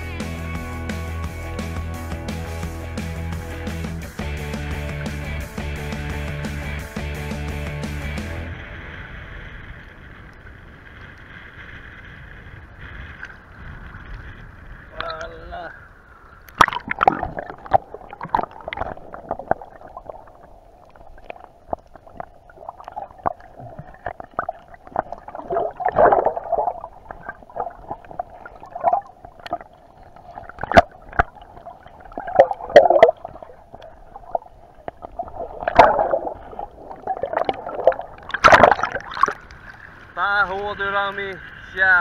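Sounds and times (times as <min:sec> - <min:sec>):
muffled underwater gurgle: 0:09.0 - 0:41.9
water sloshing: 0:16.4 - 0:40.2.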